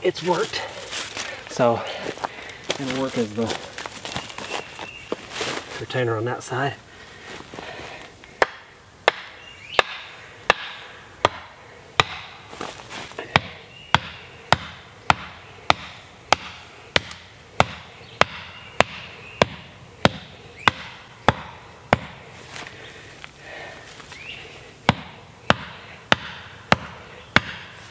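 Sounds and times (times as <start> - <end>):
axe head pounding wooden stake: 8.4 - 12.4, 13.2 - 22.2, 24.9 - 27.8.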